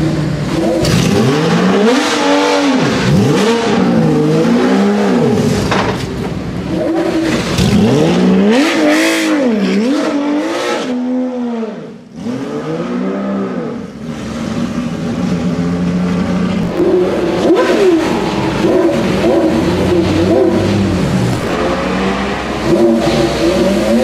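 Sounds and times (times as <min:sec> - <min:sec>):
sports car engine revving: 0:00.0 - 0:24.0.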